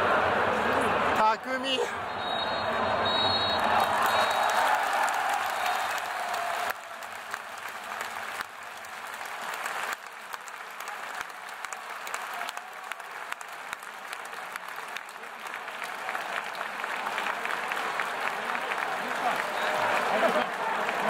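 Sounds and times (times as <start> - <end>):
stadium crowd applauding: 0.0 - 21.0.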